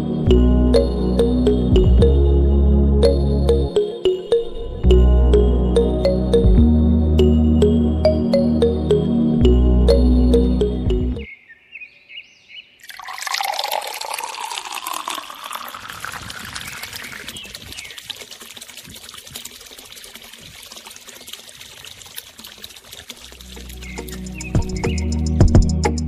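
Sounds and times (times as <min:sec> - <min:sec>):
water pouring into funnel: 0:12.8 - 0:25.5
water trickling through pipes: 0:12.8 - 0:26.0.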